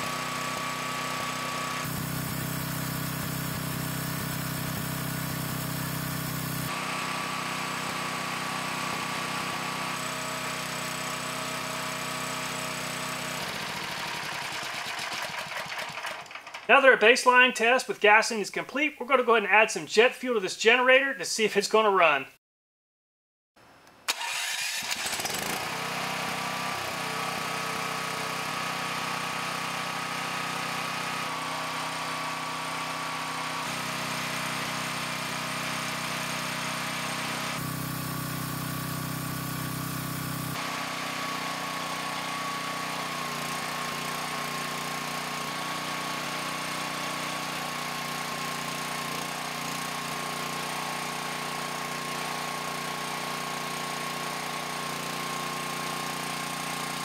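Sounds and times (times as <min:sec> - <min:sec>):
generator engine running: 0:00.0 - 0:17.0, 0:24.1 - 0:57.0.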